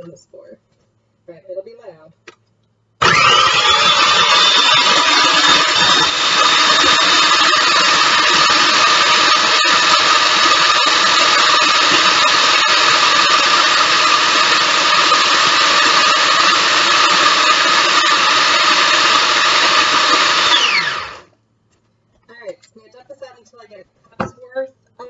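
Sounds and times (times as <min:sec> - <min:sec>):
food processor grinding crackers: 0:03.0 - 0:21.3.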